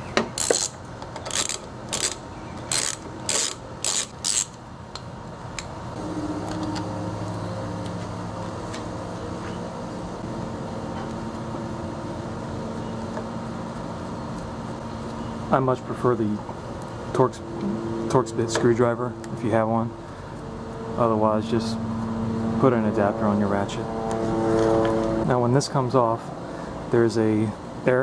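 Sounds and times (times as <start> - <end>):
steady low hum: 0.0 - 28.0
screwdriver turning a screw: 0.4 - 4.6.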